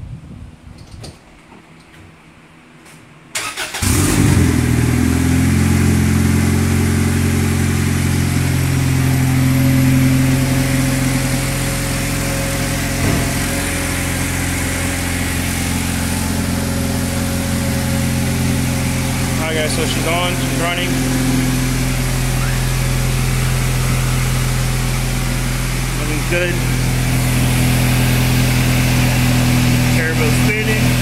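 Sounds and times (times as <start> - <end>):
car engine cranking and idling: 3.3 - 31.0.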